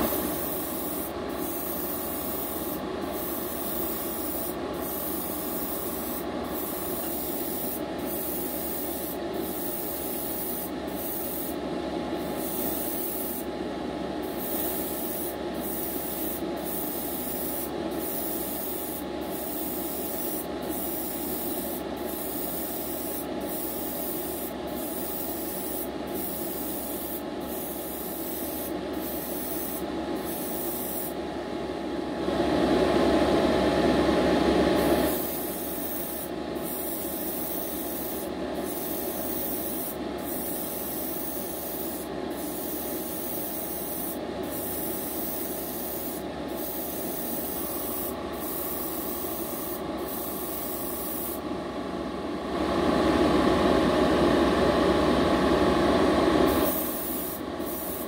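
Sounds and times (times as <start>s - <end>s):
airbrush spraying hiss: 0.0s - 11.6s, 12.2s - 13.5s, 14.2s - 31.2s, 35.1s - 51.4s, 56.5s - 58.0s
steady hum: 0.0s - 34.0s.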